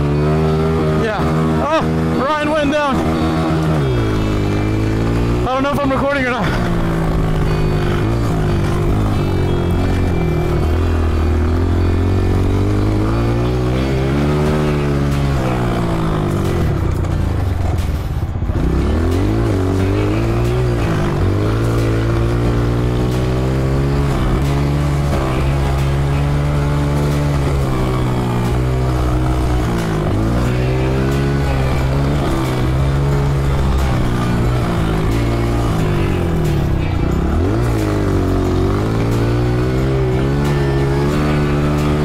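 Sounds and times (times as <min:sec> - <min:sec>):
dirt bike engine revving: 0:00.0 - 0:42.0.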